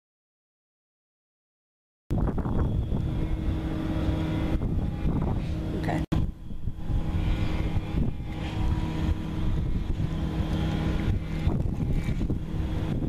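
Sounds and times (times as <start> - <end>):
low motor hum: 2.1 - 13.0
wind rumbling on microphone: 2.1 - 13.0.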